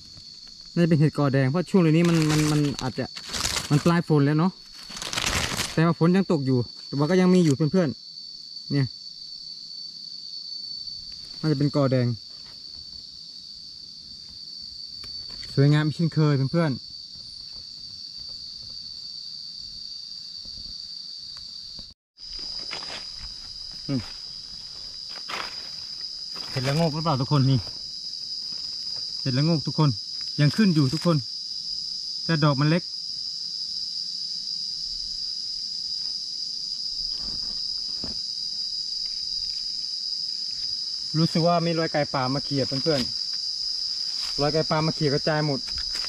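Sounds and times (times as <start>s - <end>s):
forest insects droning: 0.0s - 46.0s
rustling dry leaves: 1.9s - 4.0s, 4.6s - 5.8s, 22.2s - 29.2s.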